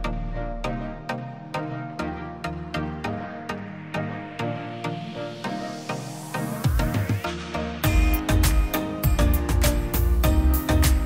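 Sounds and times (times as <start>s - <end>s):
electronic music with beat: 0.0s - 11.0s
rising sweep: 2.1s - 10.2s.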